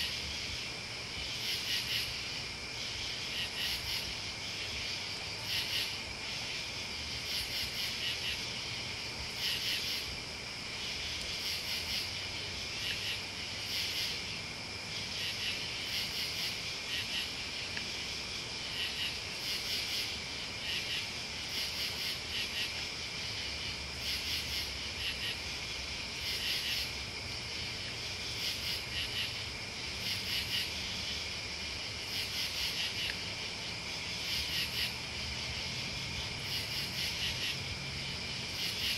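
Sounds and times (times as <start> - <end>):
insects trilling: 0.0 - 38.9.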